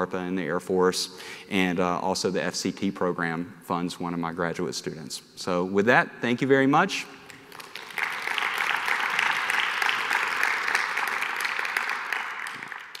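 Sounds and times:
audience applauding: 0:07.3 - 0:13.0.

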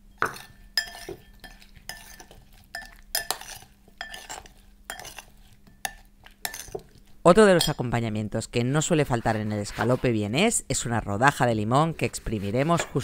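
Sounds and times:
spoon clinking and scraping bowl: 0:00.1 - 0:07.8.

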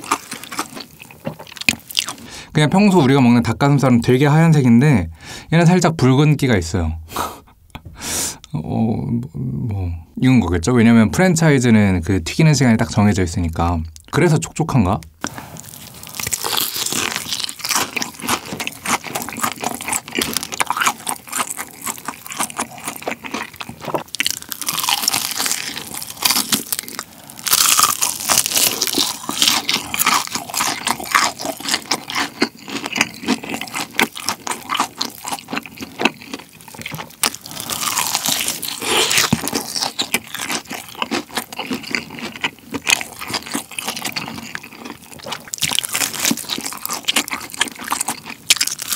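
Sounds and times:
crunching and chewing fried chicken: 0:00.0 - 0:02.5, 0:15.2 - 0:48.9.

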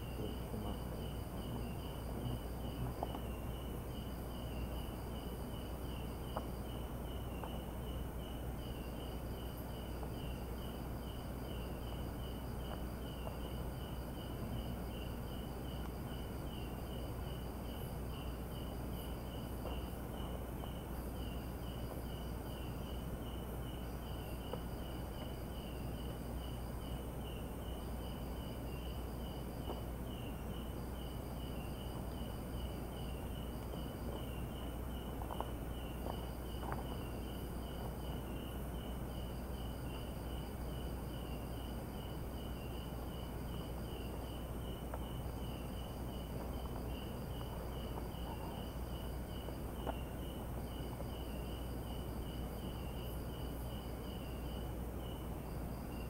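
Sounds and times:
crickets pulsing chirp: 0:00.0 - 0:56.0.

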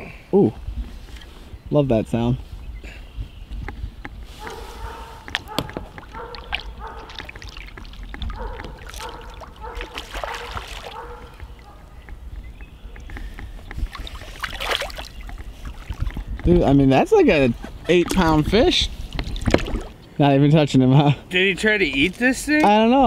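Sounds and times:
fish splashing at surface: 0:06.0 - 0:11.0, 0:13.9 - 0:15.2, 0:19.2 - 0:20.0.

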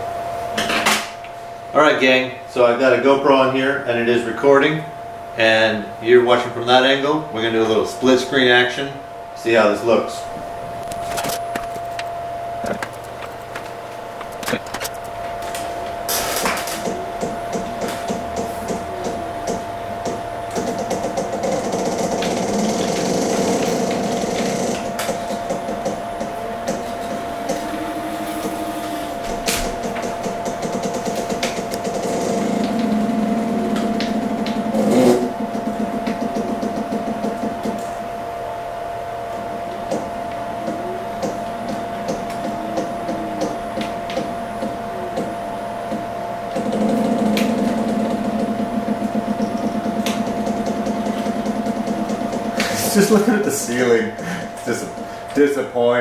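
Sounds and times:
rapidly pulsing hum: 0:00.0 - 0:56.0
lower motor tone: 0:16.9 - 0:38.0, 0:39.3 - 0:53.4
robot arm motors whining: 0:20.5 - 0:37.8
scattered clicks: 0:46.5 - 0:53.1
rapid ticking: 0:46.5 - 0:55.1.

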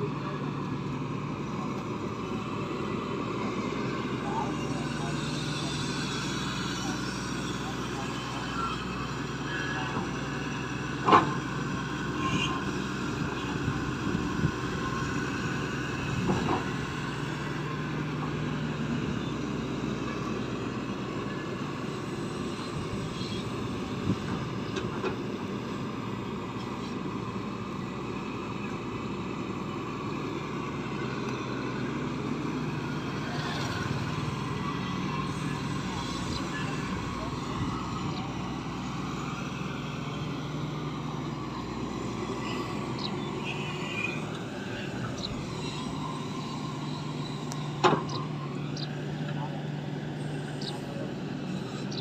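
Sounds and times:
excavator diesel engine running: 0:00.0 - 0:52.0.

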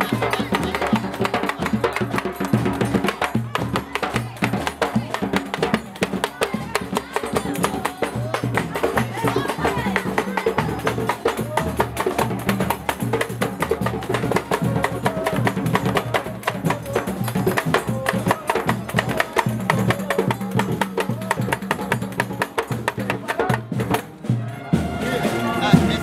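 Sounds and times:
hand drums and sticks: 0:00.0 - 0:26.0.

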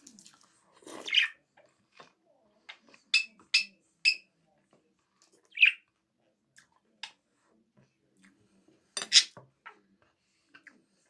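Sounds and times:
budgerigar chirping: 0:05.5 - 0:05.8.

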